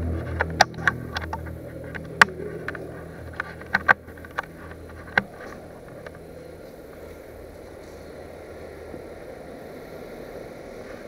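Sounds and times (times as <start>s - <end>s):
sharp clicks and knocks: 0.0s - 6.2s
low hum: 0.0s - 11.0s.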